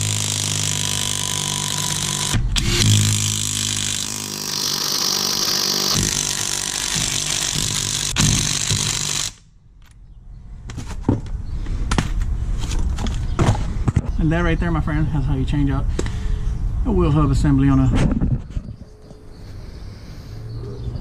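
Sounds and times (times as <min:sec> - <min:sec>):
impact wrench hammering: 0:00.0 - 0:09.4.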